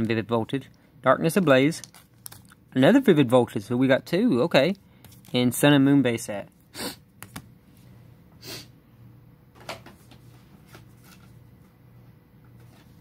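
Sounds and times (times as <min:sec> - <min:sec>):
foil pack crinkle and tap: 0:01.8 - 0:02.5.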